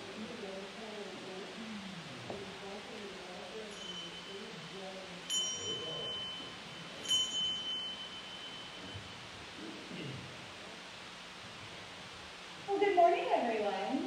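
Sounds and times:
small metal chime ringing: 3.6s - 9.1s.

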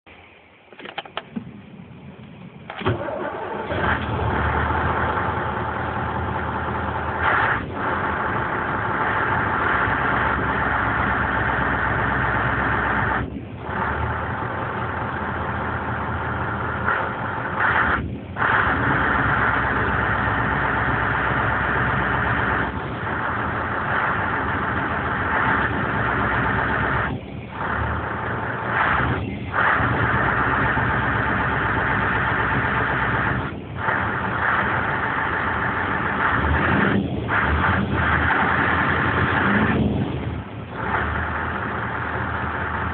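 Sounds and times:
truck engine revving: 1.2s - 42.9s.

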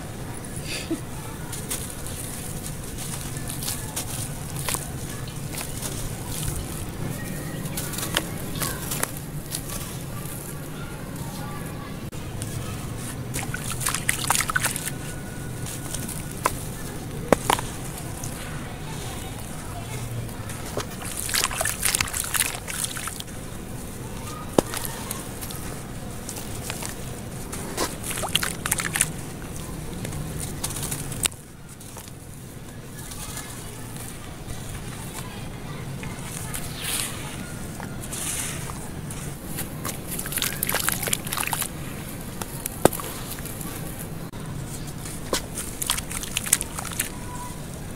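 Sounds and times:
soft crumbling: 0.7s - 47.9s
gritty crackles and crunches: 1.2s - 47.9s
charcoal block crumbling by hand: 24.5s - 32.1s, 39.4s - 43.8s, 45.0s - 47.3s.

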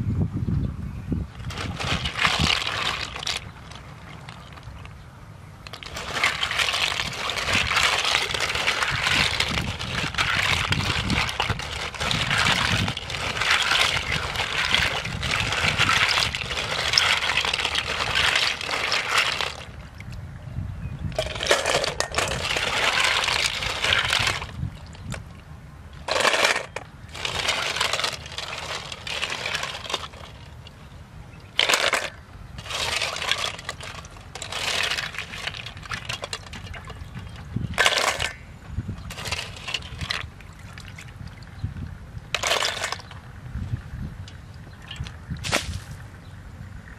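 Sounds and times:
snail shells scrubbed in metal pot: 1.4s - 4.9s, 5.6s - 20.0s, 21.1s - 25.2s, 26.0s - 30.8s, 31.4s - 41.3s, 42.3s - 43.2s.

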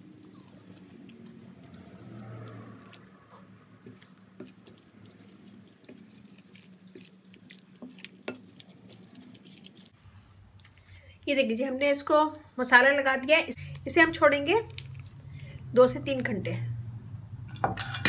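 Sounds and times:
squelching of chicken in marinade: 0.0s - 11.1s, 14.6s - 15.7s.

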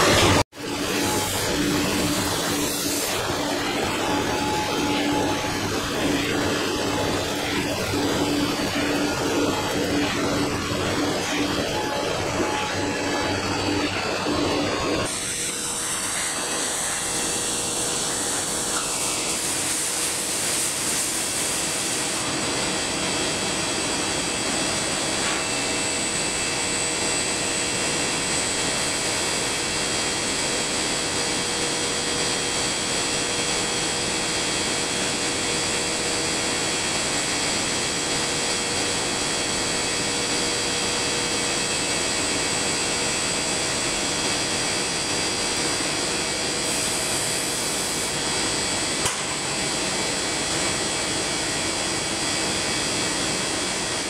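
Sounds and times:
factory machinery hiss: 0.0s - 22.8s, 38.5s - 53.6s
machinery hum tones: 0.0s - 54.0s.

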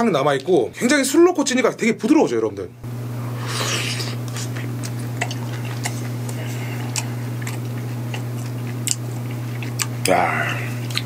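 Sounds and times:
steady low hum: 2.4s - 11.0s
person chewing: 3.4s - 11.0s.

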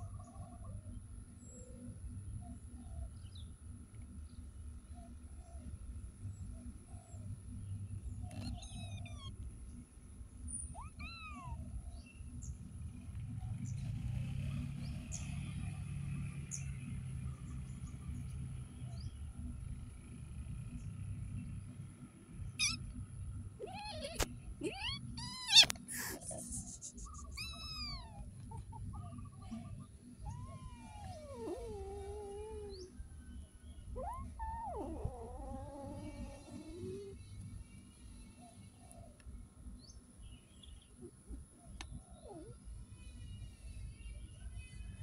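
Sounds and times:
kitten meowing: 8.3s - 9.3s, 10.7s - 11.6s, 22.6s - 22.8s, 23.6s - 26.5s, 27.2s - 28.8s, 30.3s - 32.9s, 34.0s - 37.1s.

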